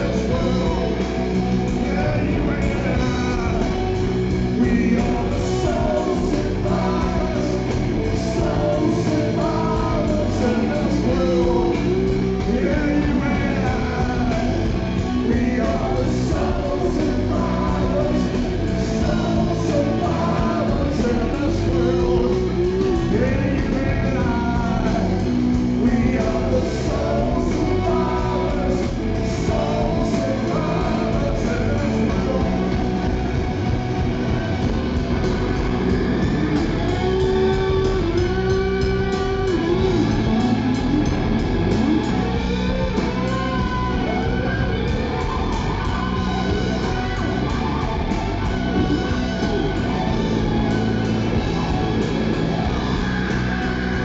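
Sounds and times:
man singing: 0.0 - 33.4
drums: 0.0 - 54.0
guitar: 0.0 - 54.0
keyboard: 0.0 - 54.0.

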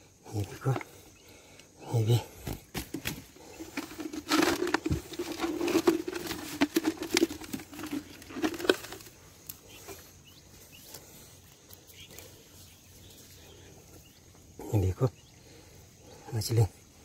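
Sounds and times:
plastic bottle crinkling: 2.9 - 9.2.

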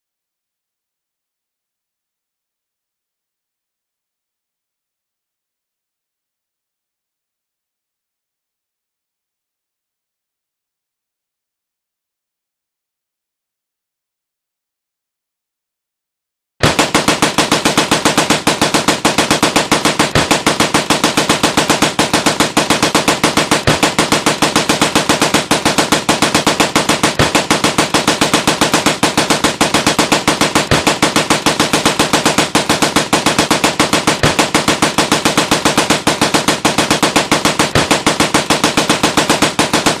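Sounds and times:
automatic machine-gun fire: 16.6 - 40.0
loud gunshot crack: 16.6 - 40.0.

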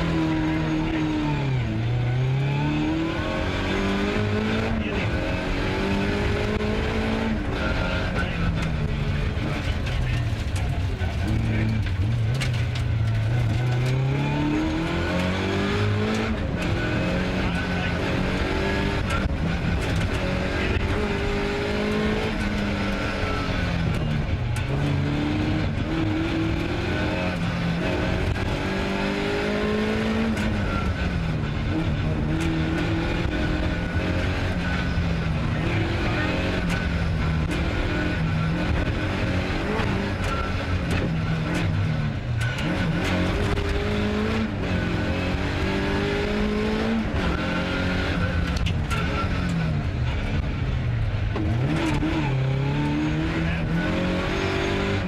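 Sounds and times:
car engine revving hard: 0.0 - 50.6, 51.3 - 55.0.

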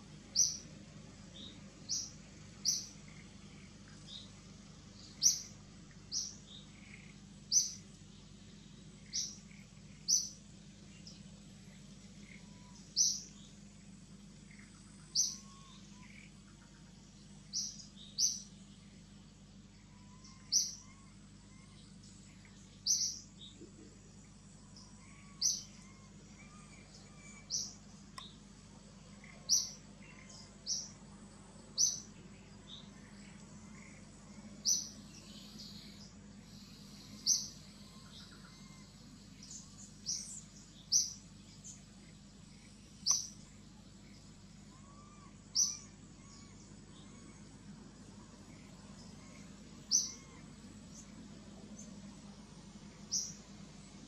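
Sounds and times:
faint forest background noise: 0.0 - 54.0
bird chirping: 0.3 - 0.7, 1.3 - 19.0, 19.6 - 31.0, 31.7 - 52.1, 52.9 - 54.0.

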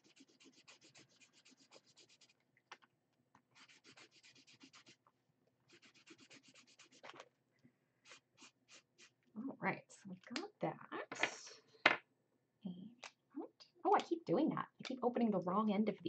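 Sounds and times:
marker scratching on paper: 0.0 - 2.4, 3.5 - 5.0, 5.7 - 7.2, 8.0 - 9.1.

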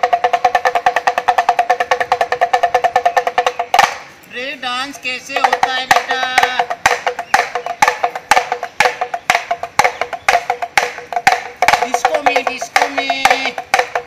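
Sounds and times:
hand drum rattling: 0.0 - 14.0.

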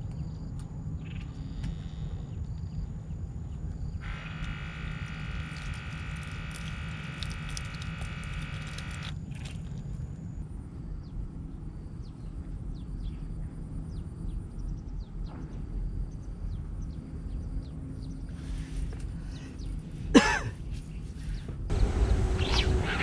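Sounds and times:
loud cough: 20.1 - 20.6
low rumble: 21.7 - 23.0.

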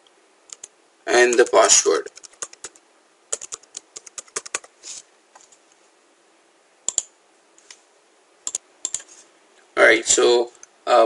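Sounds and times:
keyboard typing: 0.5 - 4.7, 6.9 - 7.1, 8.4 - 9.1.

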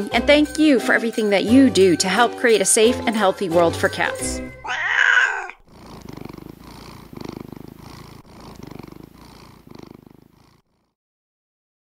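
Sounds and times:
cat purring: 3.8 - 11.0.

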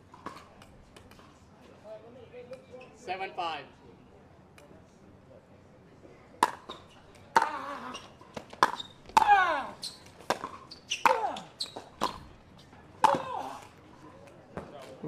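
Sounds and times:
ball popping off paddles: 6.4 - 7.6, 10.2 - 12.2.

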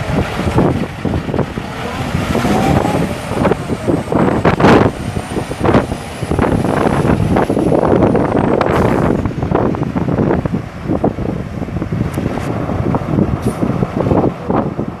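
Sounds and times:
loud burst of noise: 0.0 - 11.8
diesel truck driving away: 0.0 - 15.0
wind buffeting microphone: 0.0 - 15.0.

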